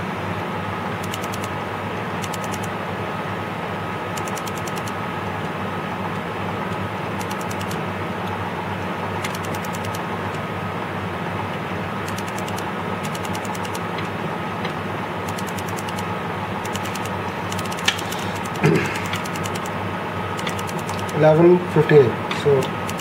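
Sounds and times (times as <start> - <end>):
steady mechanical hum: 0.0 - 23.0
keypad clicks: 1.0 - 1.5, 2.2 - 2.7, 4.2 - 5.0, 6.7 - 7.8, 9.2 - 10.0, 12.0 - 14.0, 15.3 - 19.8, 20.4 - 21.2, 22.6 - 23.0.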